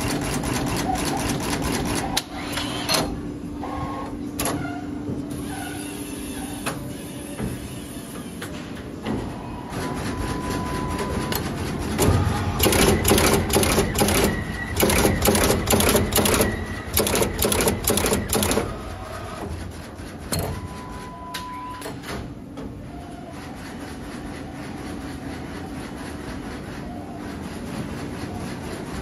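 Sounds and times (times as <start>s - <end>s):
sharp mechanical clacks: 11.3s - 18.8s.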